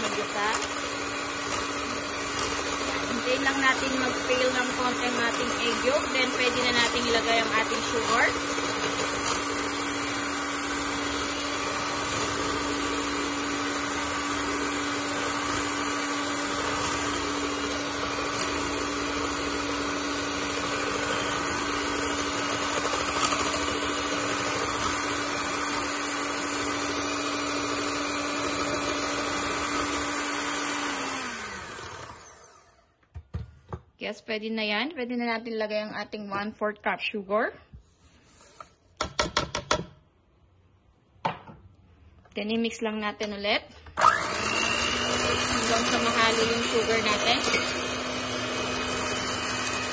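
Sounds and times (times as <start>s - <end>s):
electric hand mixer whisking: 0.0s - 32.9s, 44.0s - 49.9s
mixer motor winding down: 0.0s - 32.9s, 44.0s - 49.9s.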